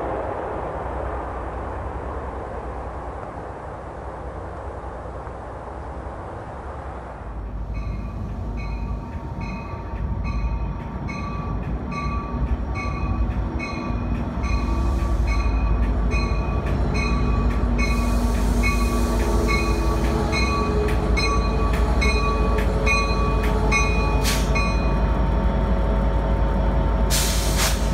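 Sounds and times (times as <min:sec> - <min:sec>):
engine and wheel rumble: 0:00.0 - 0:27.9
locomotive bell ringing: 0:07.7 - 0:25.1.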